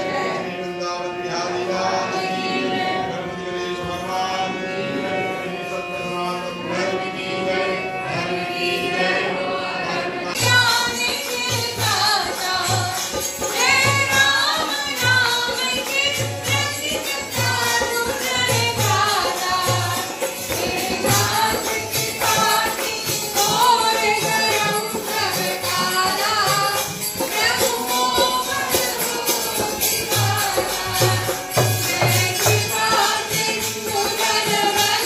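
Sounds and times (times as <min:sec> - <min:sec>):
drum beating: 0:10.4 - 0:35.0
jingling hand percussion: 0:10.4 - 0:35.0.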